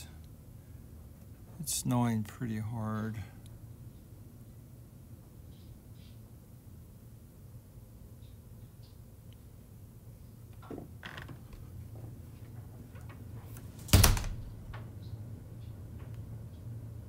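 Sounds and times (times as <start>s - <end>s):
door clicks: 13.8s - 14.9s
door slamming shut: 13.8s - 14.9s.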